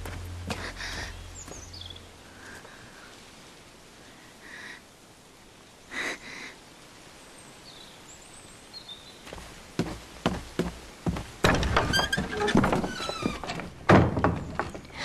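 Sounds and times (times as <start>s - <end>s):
bird calls: 0.6s - 2.7s.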